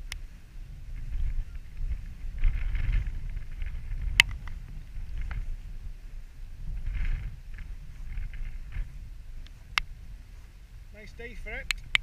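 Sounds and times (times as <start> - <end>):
wind buffeting microphone: 0.0 - 12.0
sharp clicks: 11.6 - 12.0.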